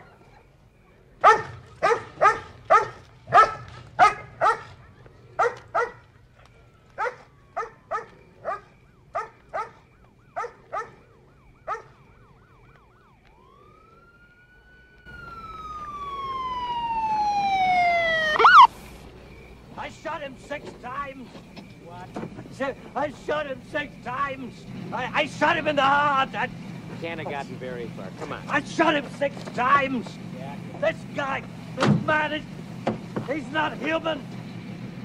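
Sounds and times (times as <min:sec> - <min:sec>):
vehicle noise: 0:00.0 - 0:35.0
dog barking: 0:01.2 - 0:06.1, 0:07.0 - 0:11.0, 0:11.6 - 0:12.0
police car siren: 0:05.6 - 0:18.8.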